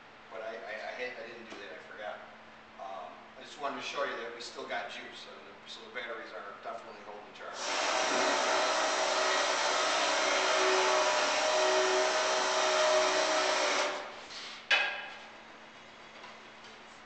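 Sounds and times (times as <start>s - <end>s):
electric motor whirring: 7.6s - 14.1s.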